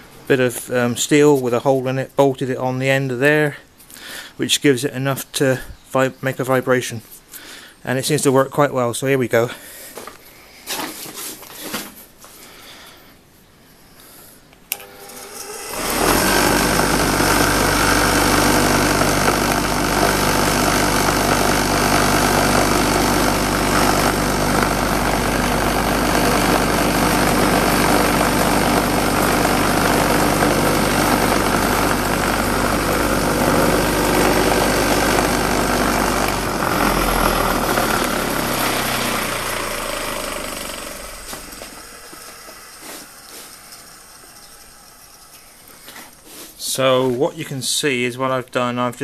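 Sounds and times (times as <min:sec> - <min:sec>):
grinder humming and winding down: 0:14.7 - 0:46.4.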